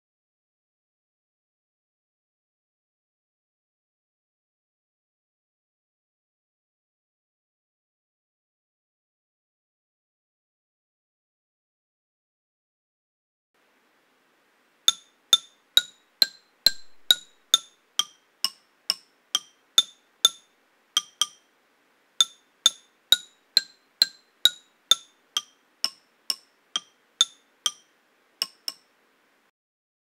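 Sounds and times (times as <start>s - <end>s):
xylophone bars struck: 14.9s - 21.5s, 22.2s - 28.9s.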